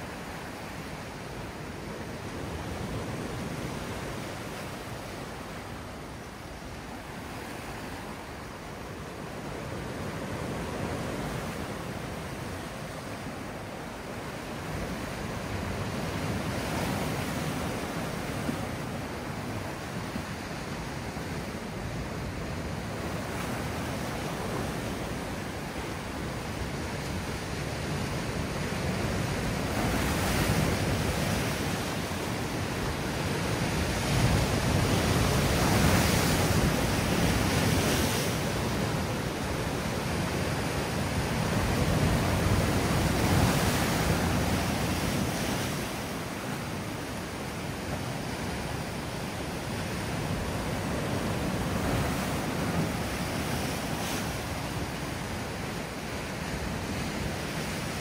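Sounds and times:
sea waves breaking on shore: 0.0 - 58.0.

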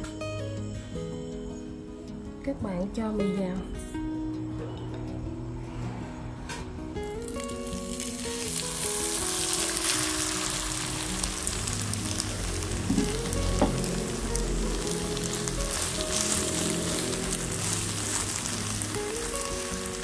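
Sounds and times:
noodles sizzling in oil: 7.0 - 20.0.

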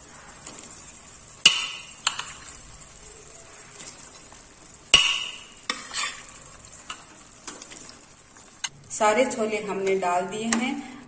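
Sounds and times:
ladle clanking on metal pots: 1.4 - 2.6, 4.8 - 7.9.

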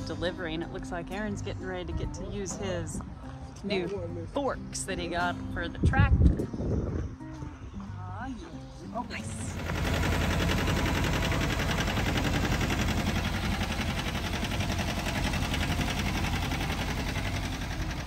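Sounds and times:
tractor engine running: 9.1 - 18.0.

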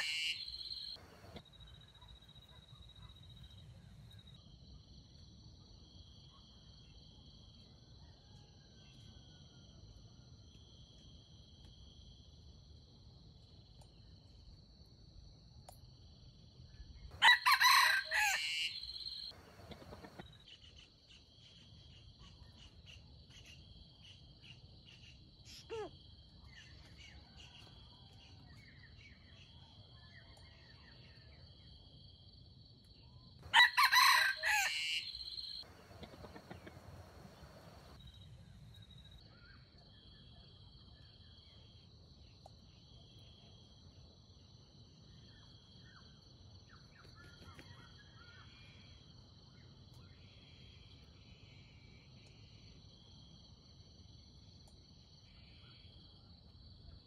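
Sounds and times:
rooster crowing: 0.0 - 1.4, 17.2 - 20.2, 33.5 - 38.0.

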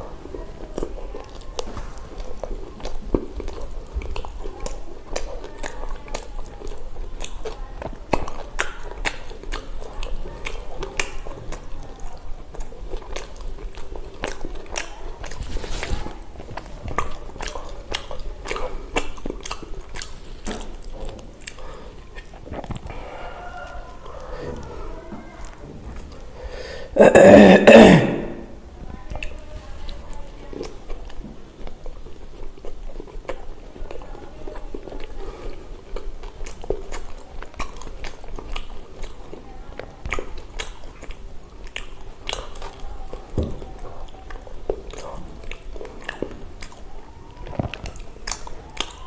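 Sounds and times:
close-up chewing and mouth smacks: 0.0 - 27.0, 28.4 - 49.0.

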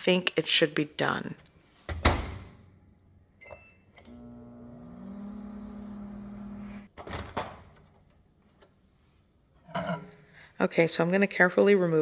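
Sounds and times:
microwave oven humming: 4.0 - 6.9.

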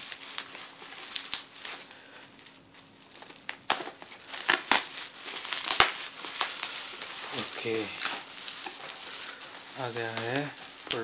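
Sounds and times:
bubble wrap crinkling and snapping: 0.0 - 11.0.

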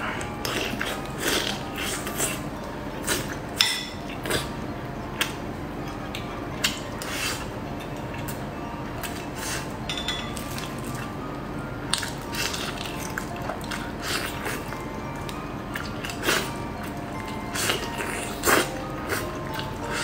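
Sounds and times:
spoon clinking glass bowl: 3.6 - 4.0, 9.9 - 10.7.

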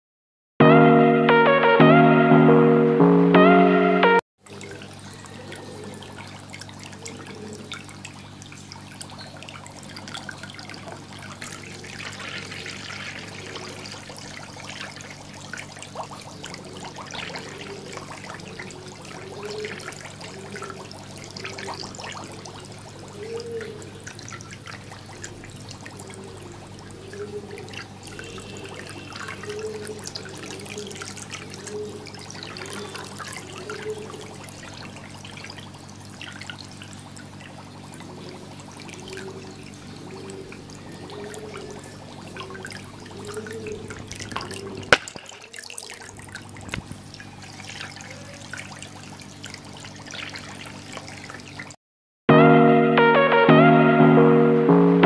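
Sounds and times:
aquarium water bubbling: 4.4 - 51.8.

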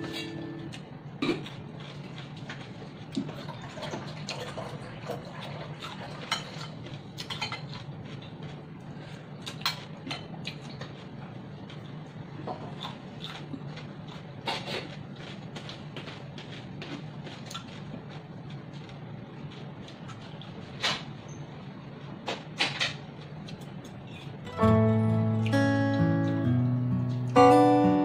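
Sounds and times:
low hum: 0.0 - 1.1
crunchy chewing: 12.7 - 20.6.

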